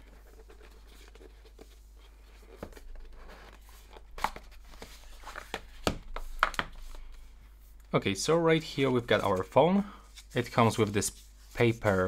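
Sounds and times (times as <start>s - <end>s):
cardboard rustling: 0.0s - 7.2s.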